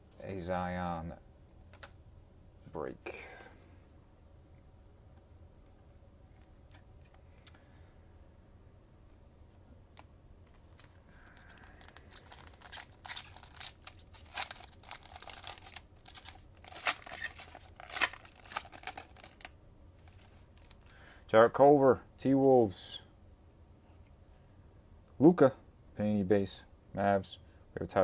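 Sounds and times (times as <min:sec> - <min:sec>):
plastic wrapper crinkling: 0:10.5 - 0:21.0
plastic wrapper being torn open: 0:10.6 - 0:20.9.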